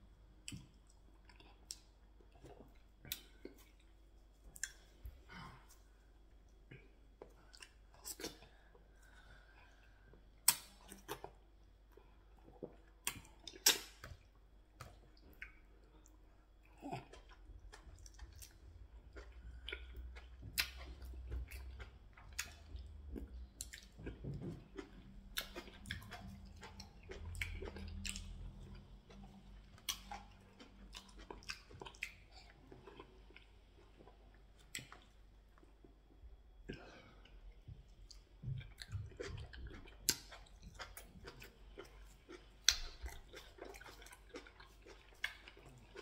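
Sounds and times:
lip smacks and mouth clicks: 10.4 - 11.4, 12.6 - 15.6, 40.0 - 46.0
moist chewing: 16.8 - 35.7, 38.0 - 46.0.

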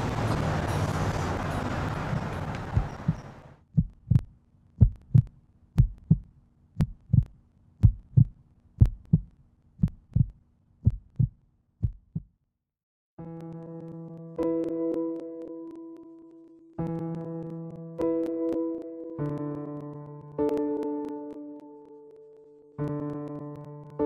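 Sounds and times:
outdoor noise: 0.0 - 11.3
heartbeat thumps: 2.6 - 12.3.

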